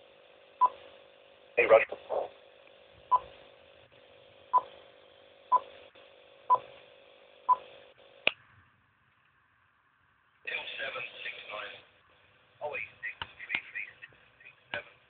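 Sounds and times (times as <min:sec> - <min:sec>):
radio hiss: 0:01.6 - 0:02.5, 0:10.5 - 0:15.0.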